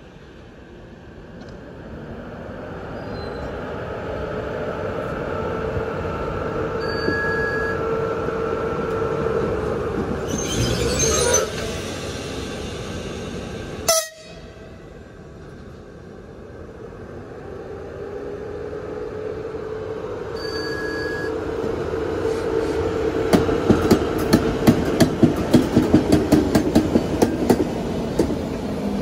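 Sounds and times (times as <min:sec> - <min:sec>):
electric locomotive humming: 0:00.0 - 0:29.0
short sharp horn blast: 0:13.9 - 0:14.6.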